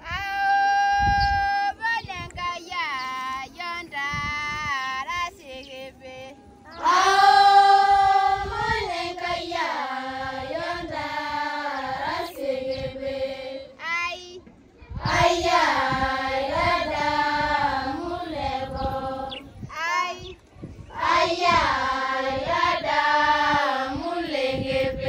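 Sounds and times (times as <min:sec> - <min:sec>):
girls chanting in unison: 0:06.7 - 0:14.3, 0:14.9 - 0:20.3, 0:20.9 - 0:25.0.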